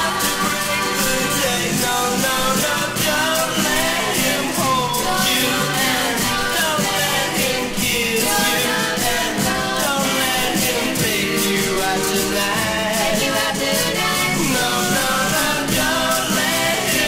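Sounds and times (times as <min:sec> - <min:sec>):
rock and roll band playing: 0:00.0 - 0:17.0.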